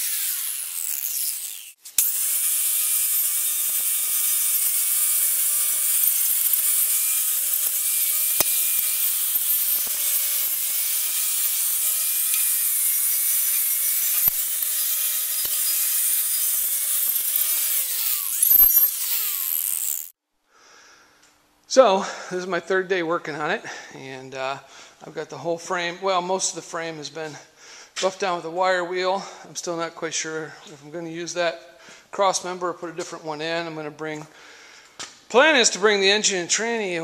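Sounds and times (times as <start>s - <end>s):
wire wheel grinder scrubbing metal: 0.0s - 20.1s.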